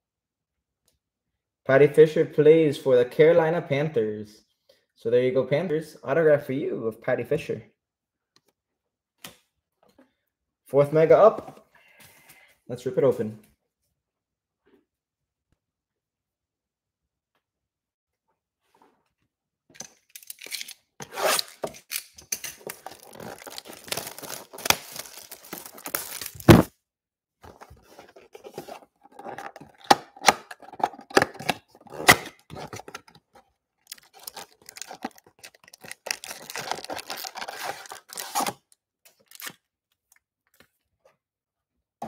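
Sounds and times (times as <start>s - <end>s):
cardboard and foil packs handled: 20.1s - 20.8s, 21.4s - 26.7s, 27.4s - 39.6s
shrink wrap tearing and crinkling: 20.1s - 26.7s, 28.4s - 33.2s, 33.8s - 39.6s.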